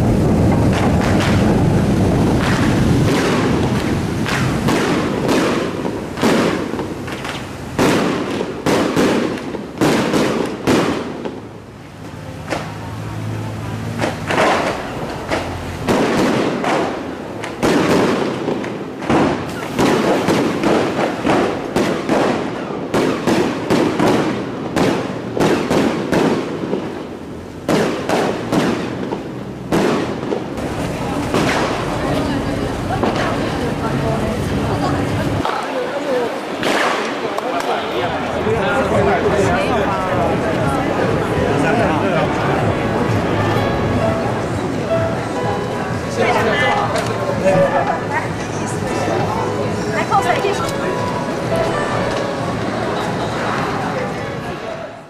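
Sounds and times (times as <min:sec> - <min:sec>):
firecrackers cracking: 0:00.0 - 0:54.7
loud single bangs: 0:02.4 - 0:11.4, 0:14.0 - 0:26.8
low rumble: 0:39.8 - 0:49.9.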